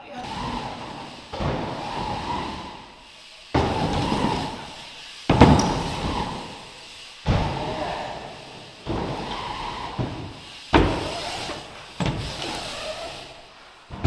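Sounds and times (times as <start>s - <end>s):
heavy thuds: 3.5s - 6.5s, 9.9s - 12.6s.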